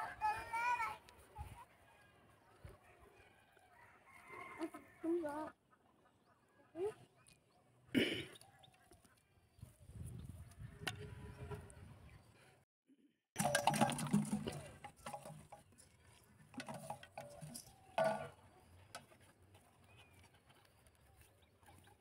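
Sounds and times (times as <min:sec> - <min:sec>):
objects clattering in steel bowl: 0:13.4 - 0:19.1.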